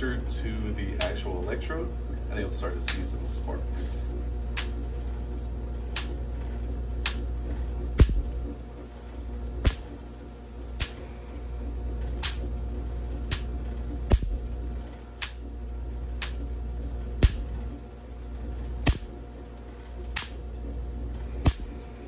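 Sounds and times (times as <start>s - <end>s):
steady low hum: 0.0s - 22.0s
electric sparks cracking: 4.5s - 4.9s, 5.9s - 6.3s, 7.0s - 7.4s, 8.0s - 8.5s, 9.6s - 10.0s, 10.8s - 11.1s, 12.0s - 15.5s, 16.1s - 16.5s, 17.1s - 17.8s, 18.6s - 19.3s, 20.0s - 20.6s, 21.2s - 21.8s.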